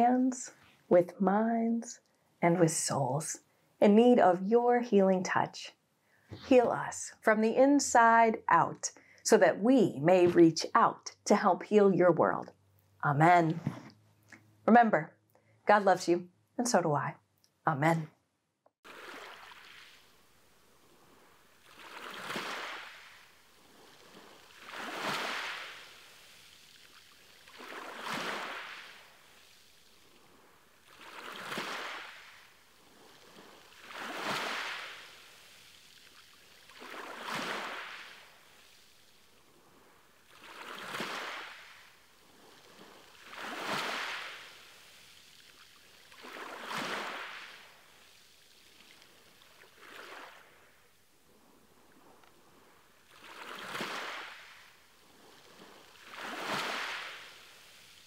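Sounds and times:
ocean waves washing in: 0:18.9 - 0:58.0.

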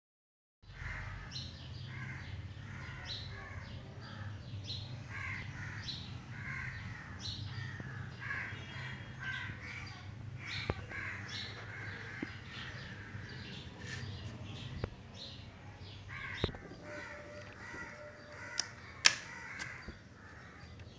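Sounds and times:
birds calling: 0:00.7 - 0:20.9
sharp clicks: 0:18.5 - 0:19.8.

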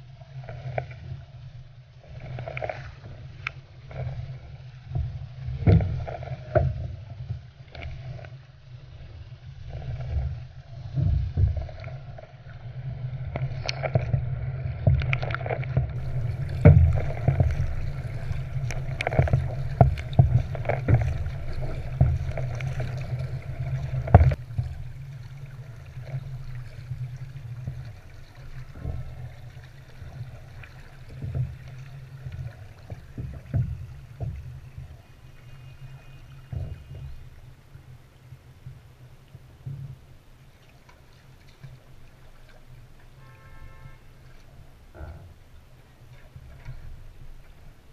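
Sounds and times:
water splashing against hull: 0:00.0 - 0:47.9
steady low rumble: 0:08.5 - 0:38.9
paddle stroke knocks: 0:16.0 - 0:24.8.

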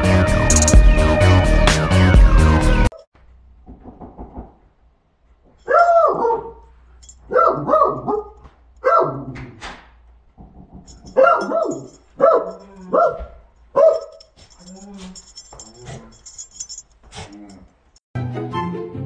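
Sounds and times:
muffled dog barking: 0:05.7 - 0:06.7, 0:07.3 - 0:09.4, 0:11.1 - 0:14.2.

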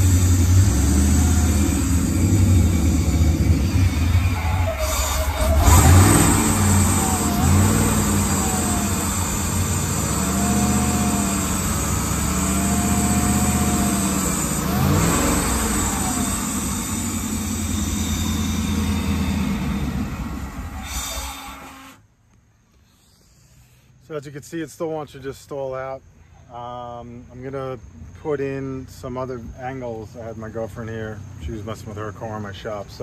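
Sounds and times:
boat engine running unevenly: 0:00.0 - 0:21.8.

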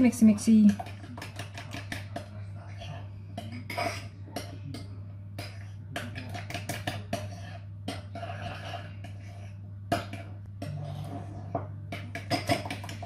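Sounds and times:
spoon scraping plastic tub: 0:06.3 - 0:09.6.

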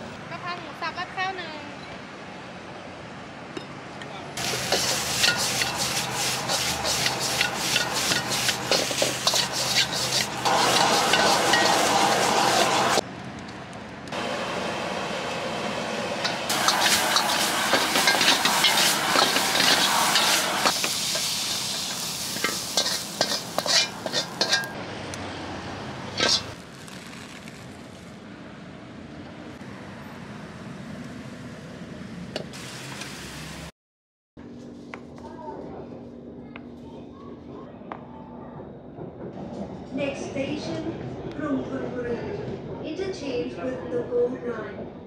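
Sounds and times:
food sizzling in a wok: 0:04.4 - 0:13.0, 0:16.2 - 0:24.8, 0:26.2 - 0:27.6, 0:32.5 - 0:33.7
metal ladle scraping a wok: 0:04.4 - 0:13.0, 0:16.2 - 0:24.8, 0:26.2 - 0:26.6.

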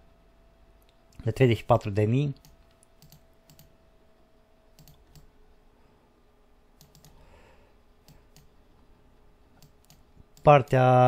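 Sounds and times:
faint computer mouse clicks: 0:02.4 - 0:03.7, 0:04.8 - 0:05.3, 0:06.8 - 0:07.2, 0:08.0 - 0:08.5.

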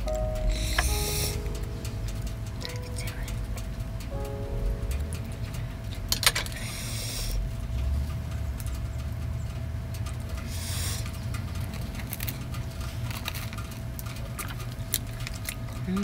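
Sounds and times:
low hum: 0:00.0 - 0:16.0
soft chewing clicks: 0:07.7 - 0:16.0.

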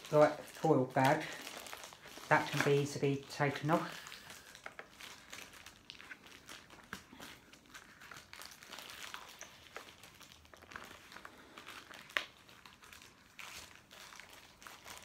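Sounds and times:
foil bag crinkling: 0:00.0 - 0:15.0.

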